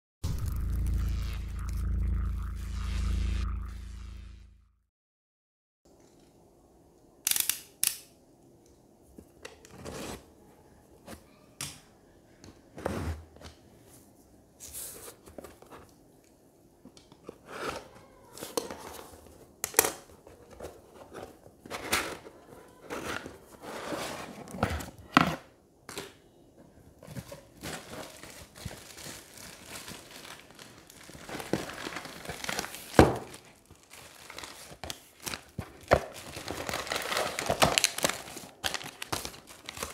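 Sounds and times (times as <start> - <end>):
plastic bags crinkling: 27.1 - 39.9.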